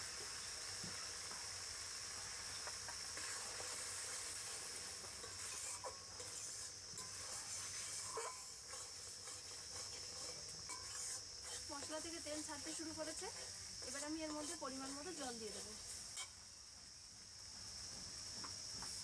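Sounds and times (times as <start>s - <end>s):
spice paste sizzling in pan: 0.0s - 19.0s
wooden spatula scraping pan: 3.2s - 12.0s, 12.7s - 15.8s.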